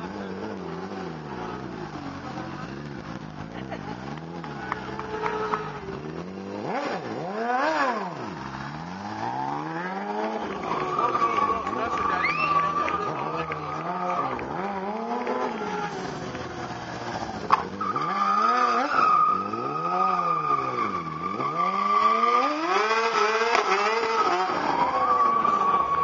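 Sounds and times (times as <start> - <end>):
motorcycle engine revving: 0.0 - 26.0
high tire squeal: 4.4 - 6.2, 7.2 - 26.0.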